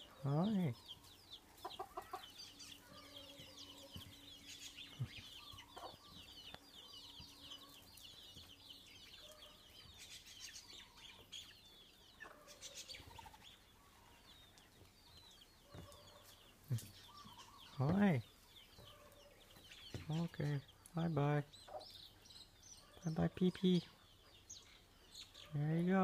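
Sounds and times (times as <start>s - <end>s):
hen clucking: 0.0s - 7.8s
chicks peeping: 0.0s - 26.0s.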